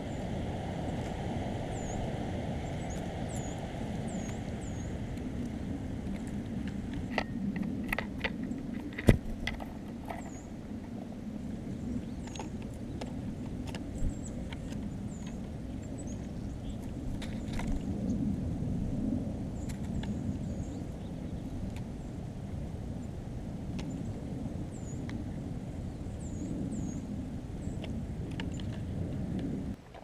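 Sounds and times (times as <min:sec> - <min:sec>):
songbird call notes: 0:00.0 - 0:05.9, 0:13.8 - 0:18.2, 0:19.6 - 0:22.2
low background rumble: 0:00.0 - 0:29.8.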